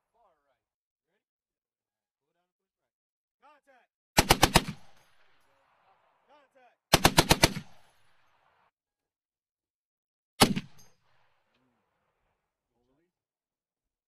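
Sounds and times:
gunfire echo: 4.2 - 6.3, 6.9 - 8.6, 10.4 - 11.5
machine gun bursts: 7.0 - 7.6.

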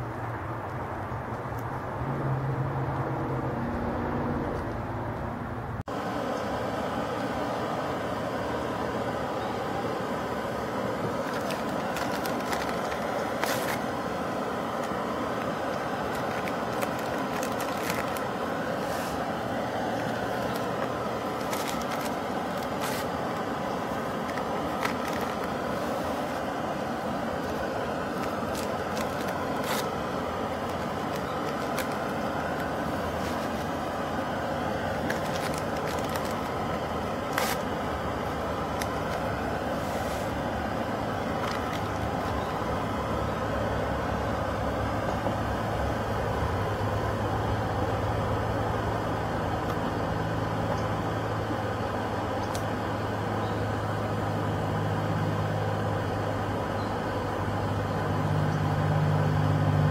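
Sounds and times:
camp stove burning: 5.8 - 55.4
sharp crackles and clicks: 27.4 - 33.8.

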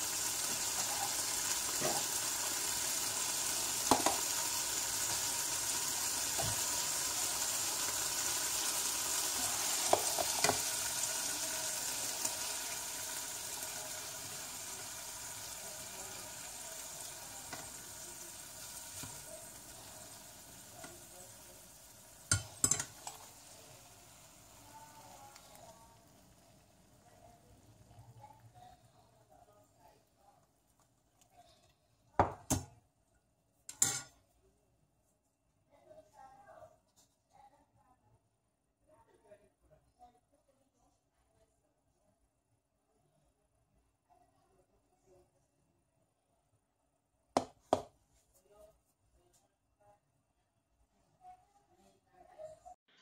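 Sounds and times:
sausages sizzling in oil: 0.0 - 28.6
utensil knocking on pan: 3.9 - 4.2, 47.4 - 47.9.

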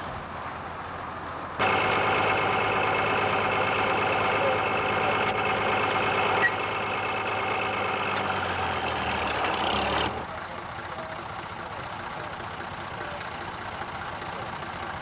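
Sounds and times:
farm machinery engine hum: 0.0 - 15.0.

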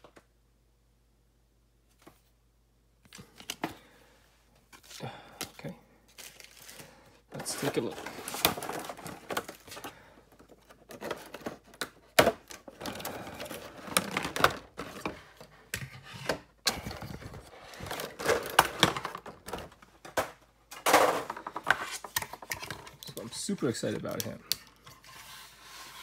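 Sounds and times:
plastic packaging crinkling: 6.1 - 15.2.

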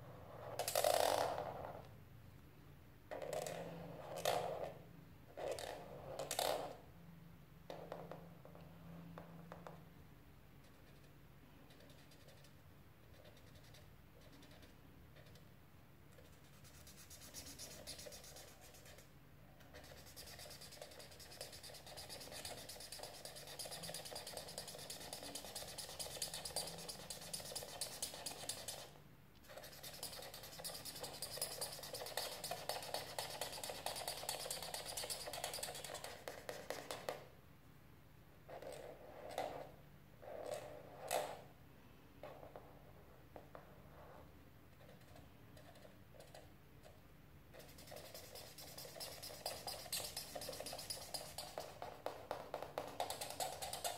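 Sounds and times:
marker scratching on paper: 10.6 - 15.4, 16.1 - 37.2, 47.5 - 53.9.

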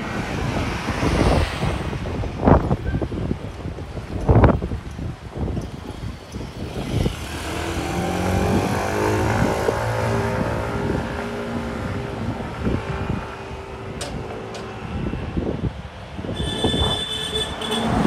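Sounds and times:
motor engine passing by: 6.5 - 15.4.

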